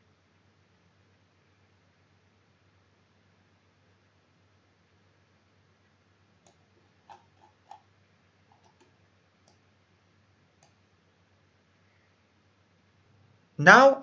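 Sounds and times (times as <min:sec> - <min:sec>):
computer mouse clicks: 0:06.4 - 0:07.9, 0:08.5 - 0:09.7, 0:10.6 - 0:10.8.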